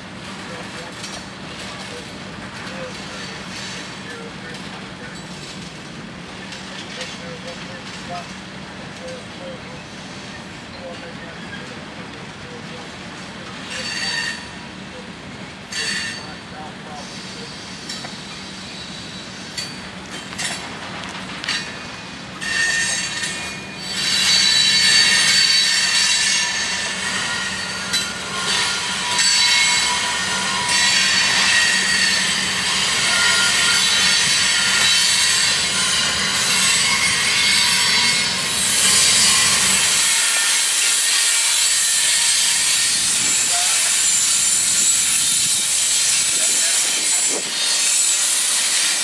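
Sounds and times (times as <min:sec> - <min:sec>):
train wheels squealing: 0:09.0 - 0:11.8, 0:13.6 - 0:14.6, 0:15.7 - 0:20.6, 0:21.5 - 0:49.0.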